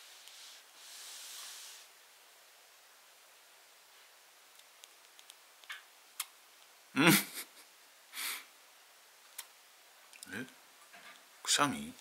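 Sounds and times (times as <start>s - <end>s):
small bird clicks and sniffs: 4.6s - 6.3s
person vocal sound: 7.0s - 7.4s.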